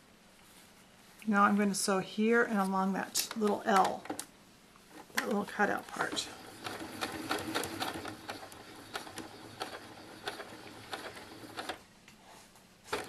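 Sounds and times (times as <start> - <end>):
sewing machine stitching: 5.9 - 11.8.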